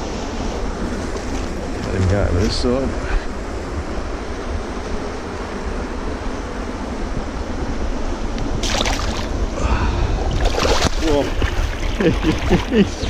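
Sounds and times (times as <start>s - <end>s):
wind rumbling on microphone: 0.0s - 13.0s
water splash: 8.6s - 9.3s, 10.4s - 12.7s
water lapping among rocks: 10.3s - 12.7s.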